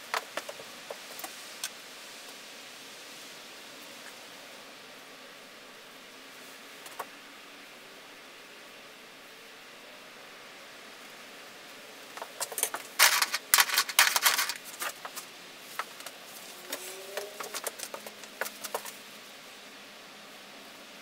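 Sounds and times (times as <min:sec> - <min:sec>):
paint brushes clinking and rattling: 0:12.2 - 0:16.1, 0:16.7 - 0:19.0.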